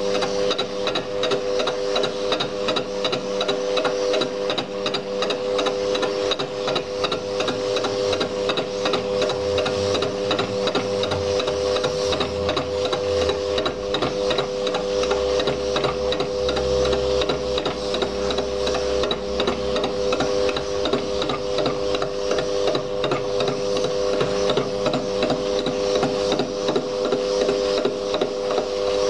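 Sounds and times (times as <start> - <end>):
cutter ticking on metal: 0.0 - 29.0
lathe motor whine: 0.0 - 29.0.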